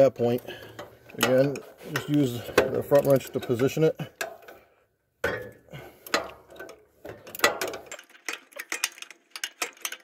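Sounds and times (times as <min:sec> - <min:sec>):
wrenches clicking on metal nut: 0:00.7 - 0:04.6, 0:06.0 - 0:10.0.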